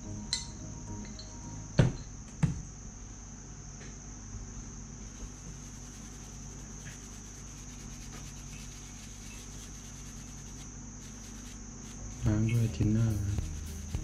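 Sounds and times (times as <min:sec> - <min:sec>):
high-pitched whine: 0:00.0 - 0:02.2, 0:05.2 - 0:14.0
low hum: 0:00.0 - 0:02.2, 0:05.1 - 0:14.0
cotton swab scrubbing circuit board: 0:05.1 - 0:14.0.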